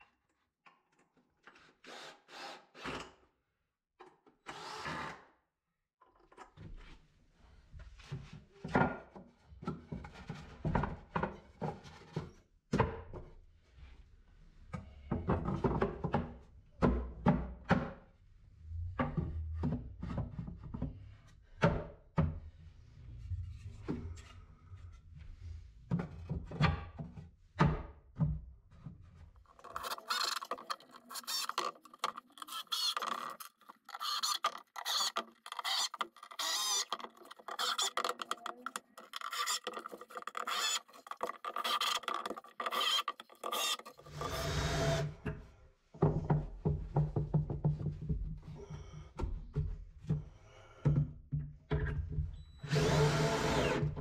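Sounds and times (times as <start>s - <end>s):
drill driver whirring: 29.6s - 45.1s, 52.6s - 54.0s.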